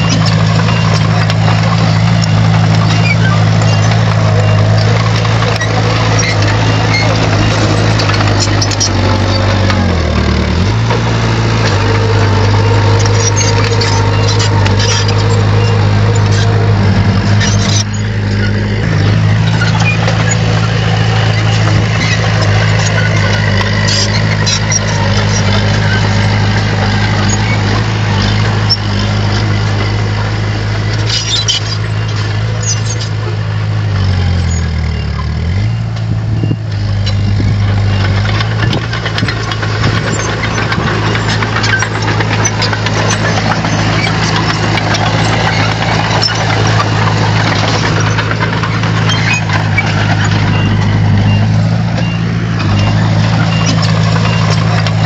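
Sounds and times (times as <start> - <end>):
bulldozer diesel engine running: 0.0 - 55.0
metallic rattling: 37.1 - 55.0.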